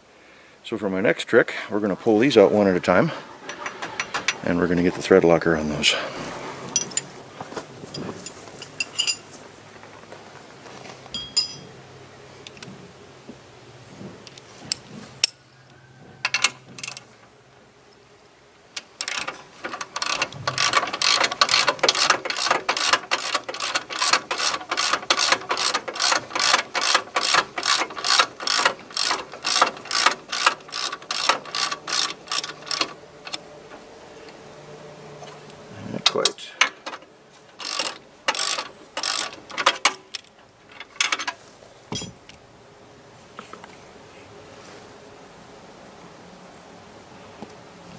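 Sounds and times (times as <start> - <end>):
light metal clinks: 7.9 - 9.4, 11.1 - 11.8
hand ratchet clicking: 18.8 - 33.4, 36.1 - 41.3.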